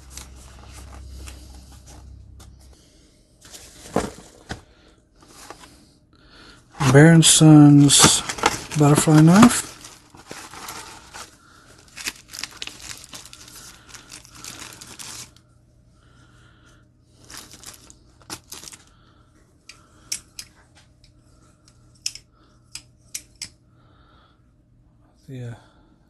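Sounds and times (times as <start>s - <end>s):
plastic bag crinkling and tearing: 6.9s - 15.4s, 17.2s - 18.9s.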